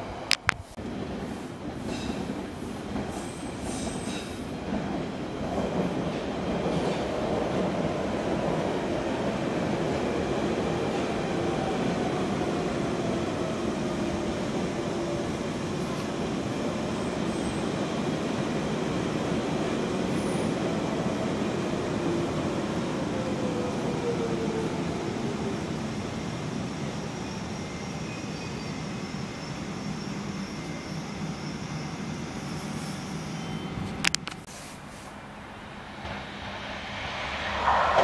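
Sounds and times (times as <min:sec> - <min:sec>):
train rumbling slowly: 0:29.0 - 0:38.0.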